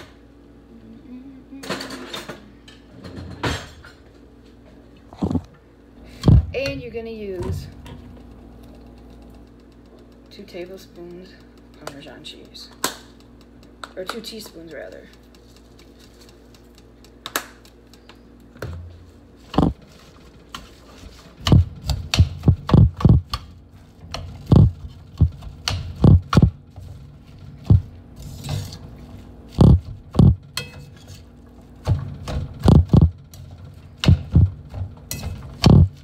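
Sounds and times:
low hum: 0:18.2 - 0:36.0.

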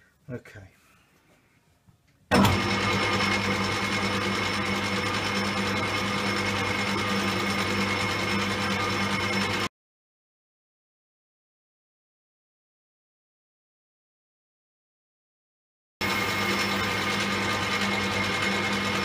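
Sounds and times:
metal lathe humming and whining: 0:02.6 - 0:09.7, 0:16.0 - 0:19.0.

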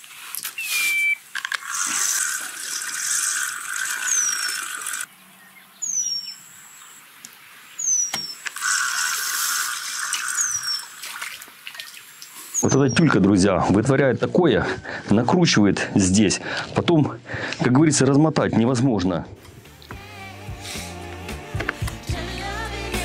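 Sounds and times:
fishing reel whirring: 0:01.4 - 0:05.1, 0:08.4 - 0:11.0.

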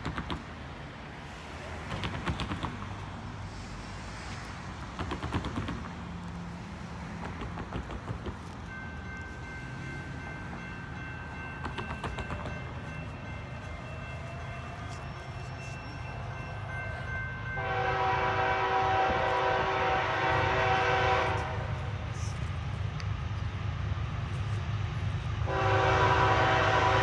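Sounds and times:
locomotive air horn: 0:17.6 - 0:21.9, 0:25.4 - 0:27.0.

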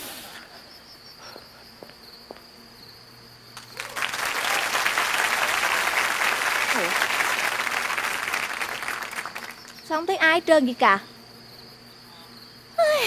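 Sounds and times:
crickets chirping: 0:00.0 - 0:13.0
audience applause: 0:03.6 - 0:09.8.

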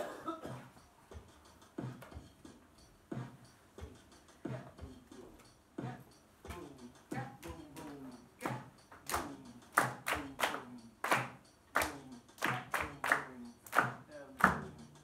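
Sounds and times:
group clapping hands: 0:07.8 - 0:14.9.

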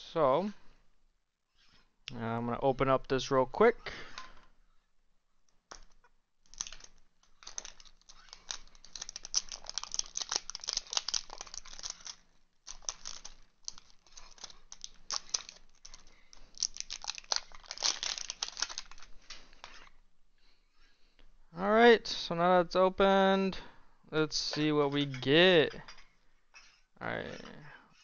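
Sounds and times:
plastic wrapping crinkling and tearing: 0:05.7 - 0:19.9.

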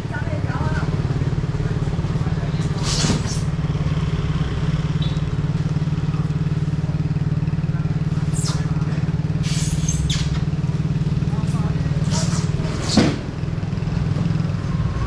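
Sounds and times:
engine idling: 0:00.0 - 0:15.0
short scrape: 0:02.8 - 0:03.5, 0:09.4 - 0:10.3.

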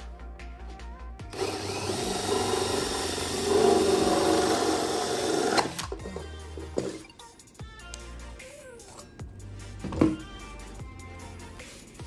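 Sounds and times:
drill with hole saw cutting plastic: 0:01.3 - 0:06.0.

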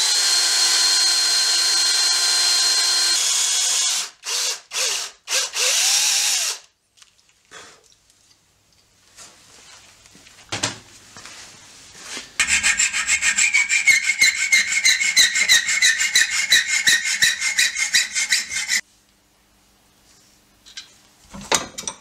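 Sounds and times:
hacksaw cutting steel: 0:12.4 - 0:18.8.

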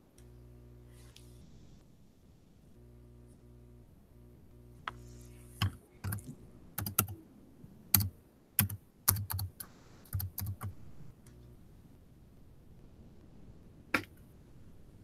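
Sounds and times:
low steady hum: 0:00.0 - 0:15.0
computer keyboard typing: 0:05.6 - 0:07.2, 0:07.9 - 0:10.8.

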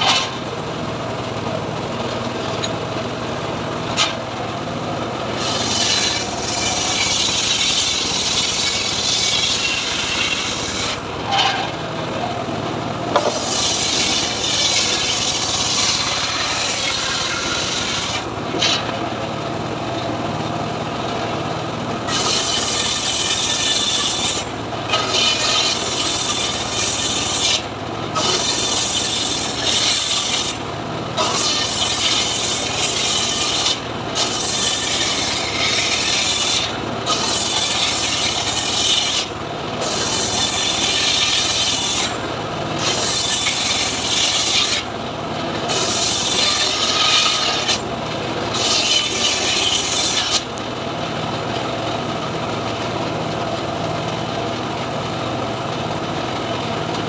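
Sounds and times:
circular saw cutting logs: 0:00.0 - 0:00.6, 0:01.2 - 0:20.5, 0:21.2 - 0:53.7
engine running steadily: 0:00.0 - 0:57.0.

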